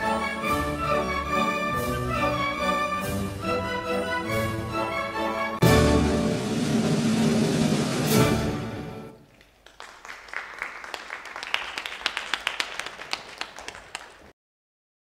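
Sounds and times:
ballet music: 0:00.0 - 0:09.3
audience applause: 0:09.2 - 0:14.3.

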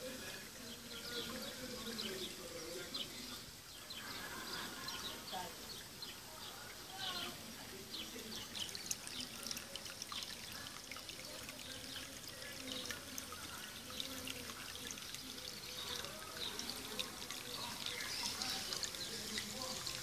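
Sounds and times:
fountain water trickling and splashing: 0:00.0 - 0:20.0.

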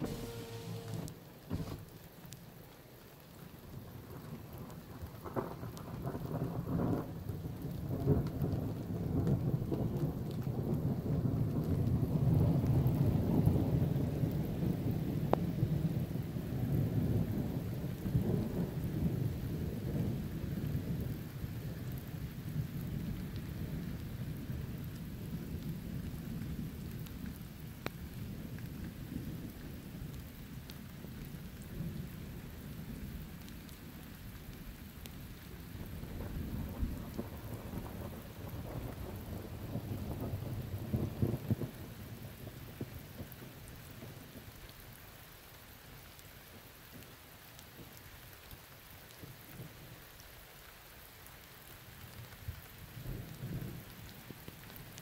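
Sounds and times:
steady rain: 0:00.0 - 0:55.0
rolling thunder rumble: 0:03.9 - 0:21.2, 0:35.7 - 0:43.4.

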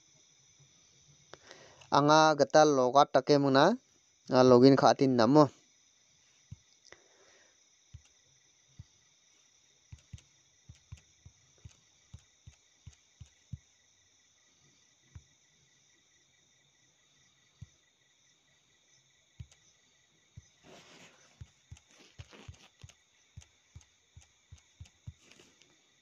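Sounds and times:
insect chirring: 0:00.0 - 0:26.0
fingertips tapping phone screen: 0:09.9 - 0:13.6, 0:19.4 - 0:19.6, 0:20.4 - 0:25.7
short rustle: 0:20.6 - 0:23.0, 0:25.1 - 0:25.8.

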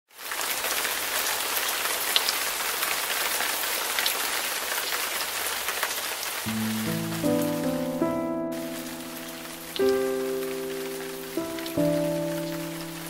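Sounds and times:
rain on wet pavement: 0:00.1 - 0:13.0
soft music notes: 0:06.5 - 0:13.0.

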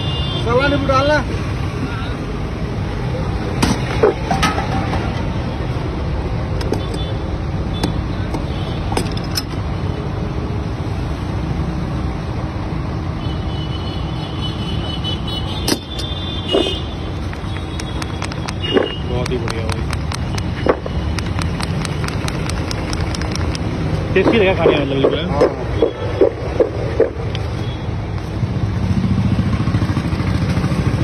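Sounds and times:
street traffic rumble: 0:00.0 - 0:31.0
utensils clicking and knocking: 0:07.9 - 0:09.6, 0:15.7 - 0:27.4.

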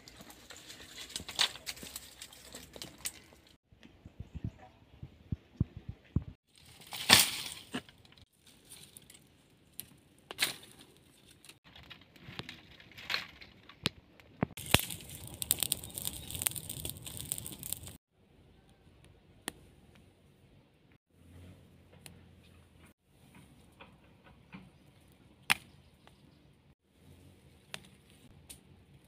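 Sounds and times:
fire crackling: 0:00.0 - 0:03.6, 0:06.5 - 0:18.0
twigs snapping and crunching: 0:00.0 - 0:03.6, 0:06.5 - 0:18.0, 0:25.4 - 0:26.2, 0:27.6 - 0:28.7.

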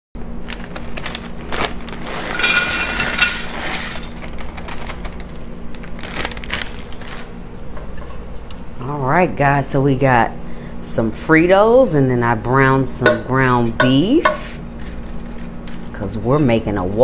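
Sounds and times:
plastic bag crackling: 0:00.4 - 0:07.4
chips clattering into crock: 0:02.3 - 0:03.4.

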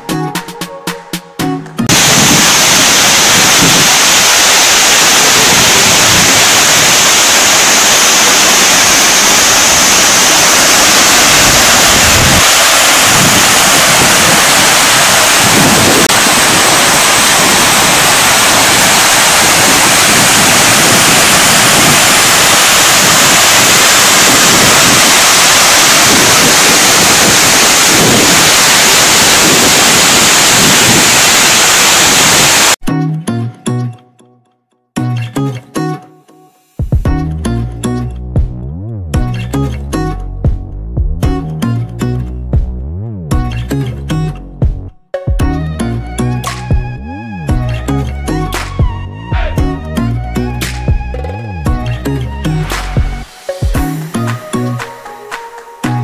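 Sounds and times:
water cascading over rocks: 0:01.9 - 0:32.8
waterfall rushing: 0:01.9 - 0:32.8, 0:52.7 - 0:56.0.

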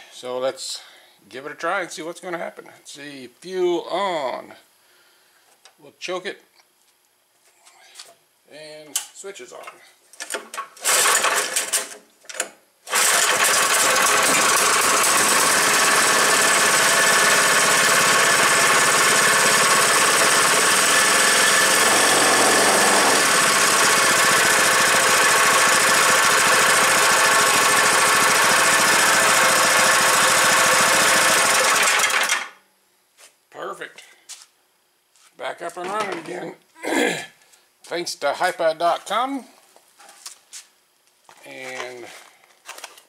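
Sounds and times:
small engine running: 0:10.8 - 0:11.6, 0:12.9 - 0:32.5
recoil starter pull: 0:10.8 - 0:11.9, 0:12.9 - 0:32.5.

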